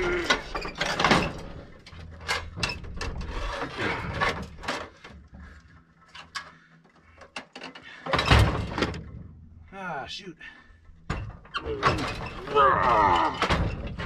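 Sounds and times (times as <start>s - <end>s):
metal knocks and scraping: 0.0s - 5.5s.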